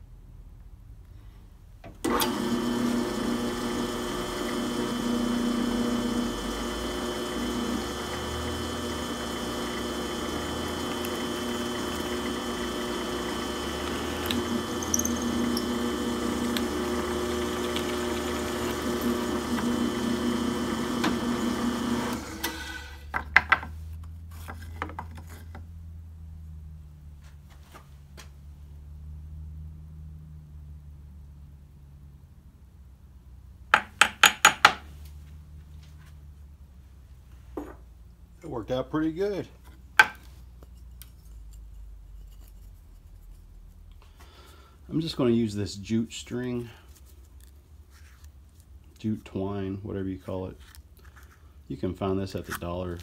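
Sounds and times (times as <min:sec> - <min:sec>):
drill press boring: 0:02.1 - 0:23.0
sharp clacks of handled wood: 0:40.0 - 0:40.3.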